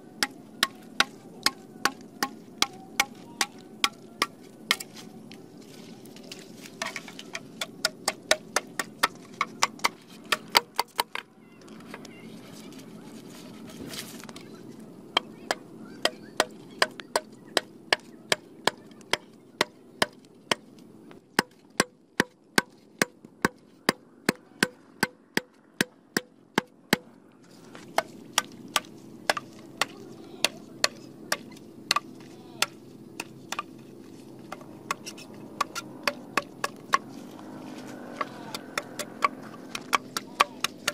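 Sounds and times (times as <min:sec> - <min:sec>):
machete chopping bamboo: 0:00.2 - 0:05.0, 0:06.8 - 0:11.2, 0:15.2 - 0:20.7, 0:21.4 - 0:27.1, 0:27.7 - 0:33.8, 0:34.5 - 0:40.9.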